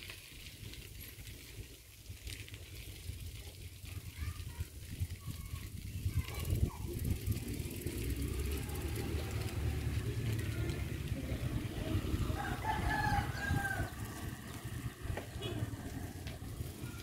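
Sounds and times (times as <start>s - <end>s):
bicycle rolling on pavement: 0.0s - 17.0s
rooster crowing: 12.3s - 14.3s.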